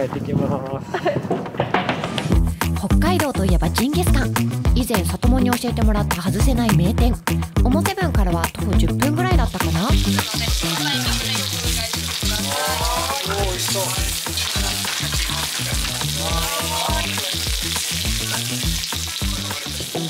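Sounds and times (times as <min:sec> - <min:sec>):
background music with beat: 0:01.9 - 0:20.0
meat sizzling on grill pan: 0:09.3 - 0:20.0.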